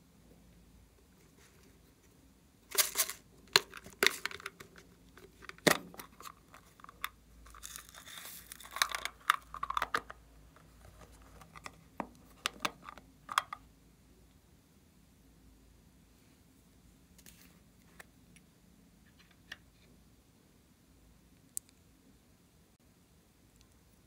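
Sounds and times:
plastic containers clicking: 2.8 - 7.1
beads poured into glass dish: 7.5 - 9.5.

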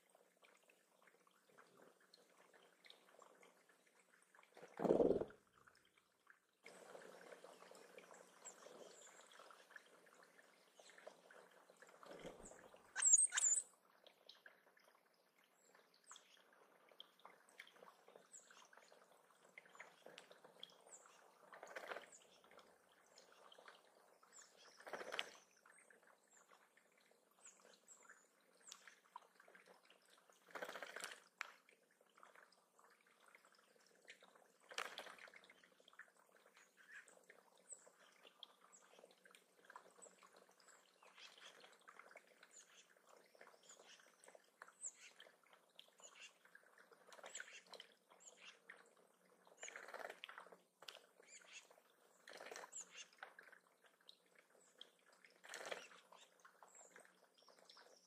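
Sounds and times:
water trickling over stones: 0.0 - 58.0
birds splashing in water: 1.2 - 14.7, 15.8 - 58.0
high bird chirps: 13.0 - 13.6.

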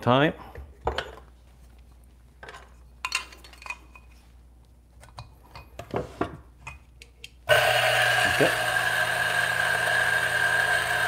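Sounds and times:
coffee grinder motor running: 7.5 - 11.0.

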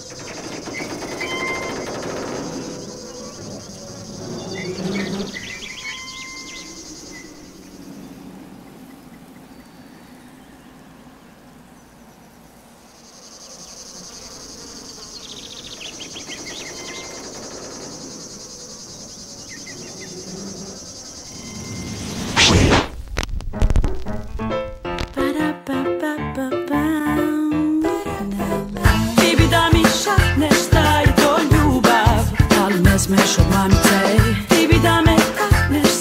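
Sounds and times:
insects chirring: 0.0 - 22.8, 28.7 - 36.0
short insect chirps: 0.0 - 23.0.

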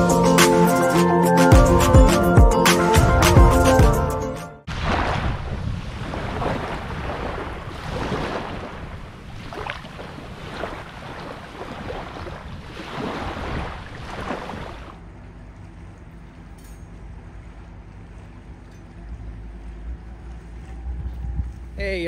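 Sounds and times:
small waves washing on sand: 4.7 - 15.0
steady outdoor hush: 14.8 - 22.0.

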